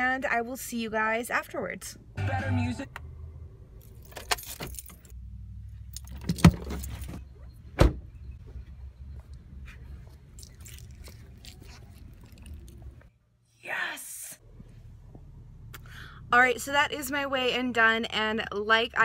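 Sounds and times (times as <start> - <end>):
car keys jangling: 3.8 - 5.2, 5.9 - 7.2
car door shutting: 7.8 - 8.1.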